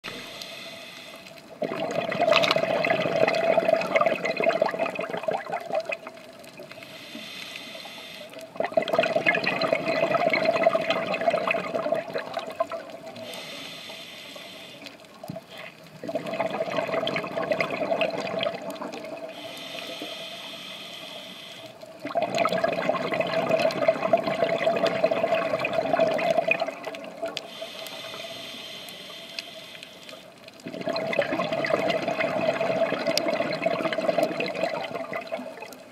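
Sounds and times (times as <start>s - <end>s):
bubbling exhale through regulator: 0.0s - 35.9s
hissing inhale: 0.1s - 1.5s, 6.8s - 8.6s, 13.1s - 15.8s, 19.3s - 21.9s, 27.4s - 30.4s.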